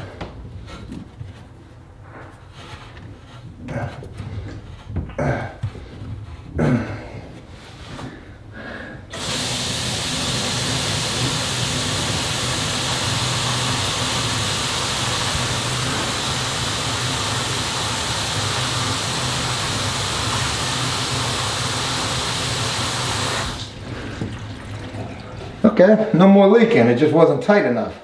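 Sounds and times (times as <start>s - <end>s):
water running down a drain: 9.1s - 25.6s.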